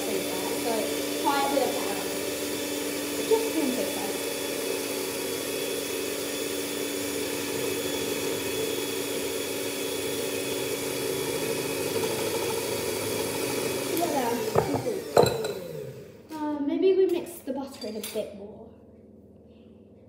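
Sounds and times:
electric hand mixer whining: 0.0 - 16.3.

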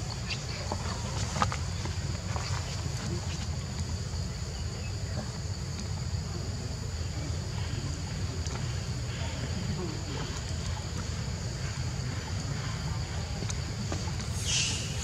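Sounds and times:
high-pitched insect drone: 14.3 - 15.0.

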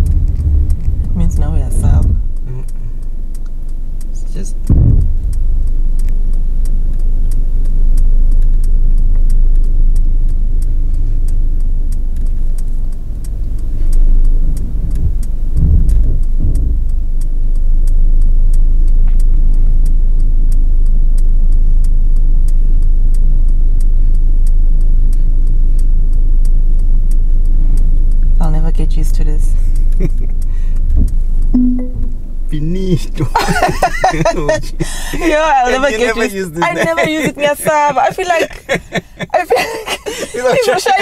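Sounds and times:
fast even ticking: 0.0 - 19.0, 29.6 - 36.0
heavy low thumps: 0.0 - 21.5, 29.6 - 32.8
car driving rumble: 0.0 - 41.0.

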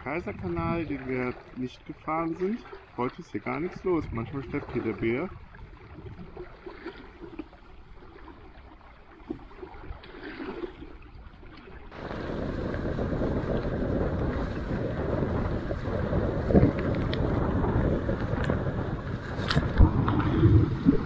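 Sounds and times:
rushing water: 0.0 - 21.0
small water splashes: 0.0 - 21.0
wind buffeting microphone: 11.9 - 21.0.

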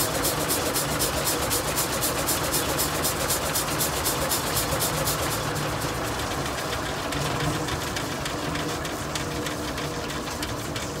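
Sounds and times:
steam hissing: 0.0 - 6.0
steam engine exhaust beats: 0.0 - 7.2.

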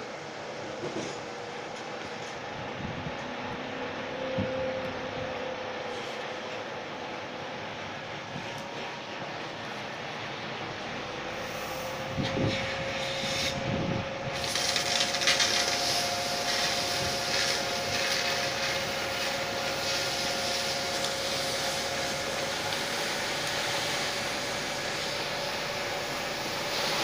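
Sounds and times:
fire engine droning: 0.0 - 27.0
pump whine: 0.0 - 27.0
hose water jet hissing: 11.4 - 13.7, 14.3 - 27.0.

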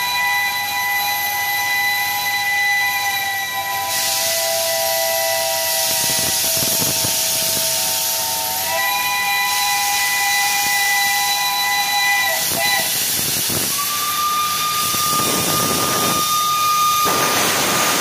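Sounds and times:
steam hissing: 0.0 - 18.0
steam locomotive whistle blast: 0.0 - 18.0.

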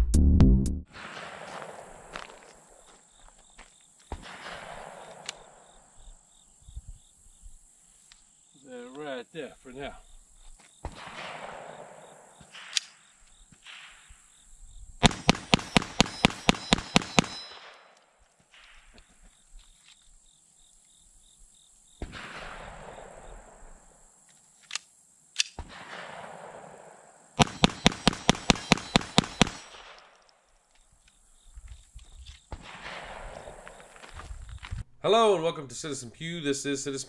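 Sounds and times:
pistol shots: 0.9 - 2.5, 4.1 - 5.8, 10.8 - 14.1, 15.0 - 18.7, 25.6 - 30.2, 32.5 - 33.8
sharp gunshot cracks: 0.9 - 2.5, 4.1 - 5.6, 10.8 - 13.0, 13.6 - 14.2, 15.0 - 18.9, 22.0 - 23.5, 25.5 - 26.8, 27.4 - 30.2, 32.5 - 33.8.

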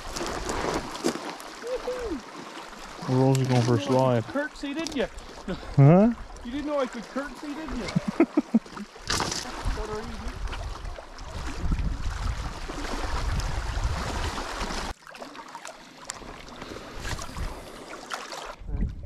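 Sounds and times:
lake water rushing: 0.0 - 18.6
wind buffeting microphone: 9.6 - 14.4, 18.6 - 19.0.

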